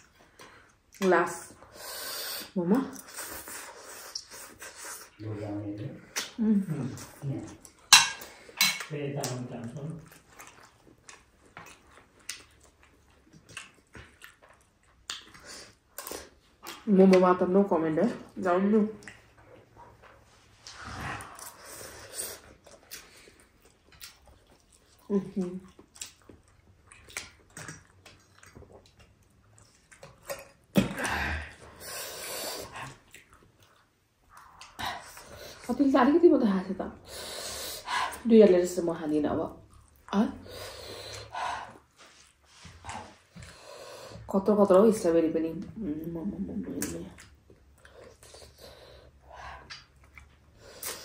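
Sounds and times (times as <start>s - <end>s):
wet chewing clicks and smacks: 7.0s - 17.5s, 18.2s - 21.7s, 22.4s - 31.7s, 32.6s - 35.7s, 38.9s - 40.2s, 46.7s - 51.0s.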